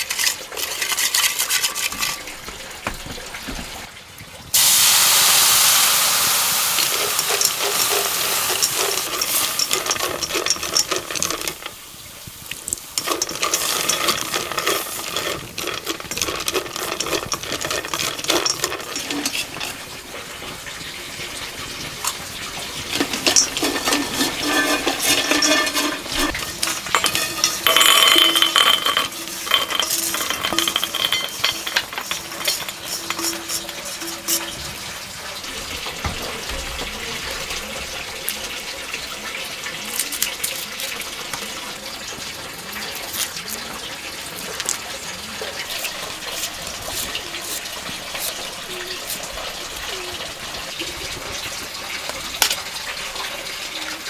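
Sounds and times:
peanuts rattling in wok: 0.0s - 2.3s, 4.6s - 54.0s
light sizzle: 0.0s - 54.0s
liquid hissing in hot wok: 4.5s - 26.8s
peanuts tipped into steel bowl: 6.6s - 11.8s, 12.5s - 20.0s, 22.9s - 34.6s.

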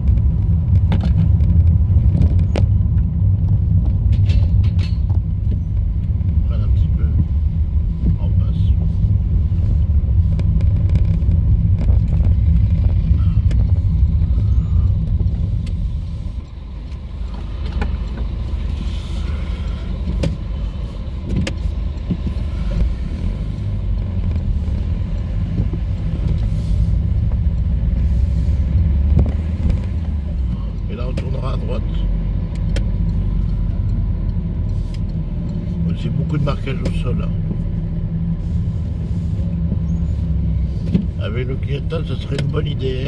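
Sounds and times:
car road noise on cobbles: 0.0s - 43.0s.

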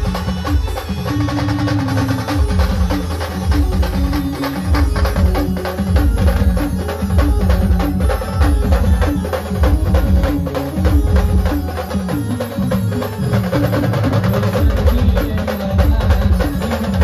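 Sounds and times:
fast heavy drumming: 0.0s - 17.0s
live band playing: 0.0s - 17.0s.

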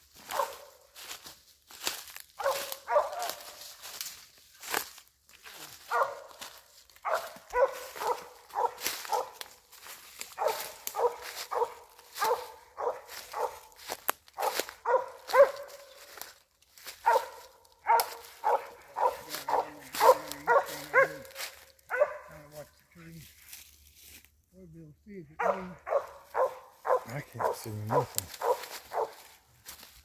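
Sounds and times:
footsteps in dry leaves: 0.0s - 24.5s, 25.4s - 30.0s
dog barking: 0.2s - 0.9s, 2.4s - 3.8s, 5.6s - 16.2s, 16.8s - 22.8s, 25.4s - 29.4s.

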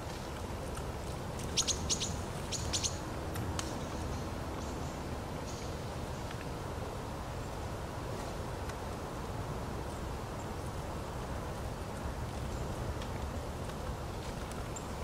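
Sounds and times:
songbirds chirping: 0.0s - 8.3s.

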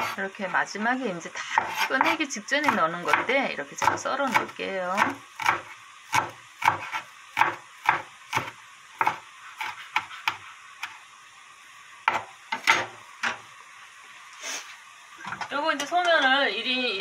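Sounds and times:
knife chopping on wooden board: 1.6s - 11.0s, 12.1s - 13.4s.

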